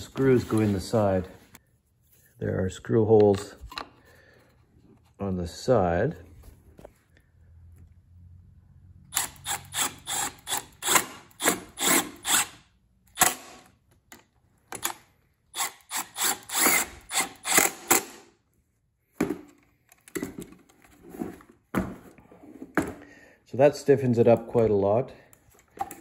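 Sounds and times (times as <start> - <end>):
drill driving screws clicking: 9.1 - 13.7, 15.6 - 18.2.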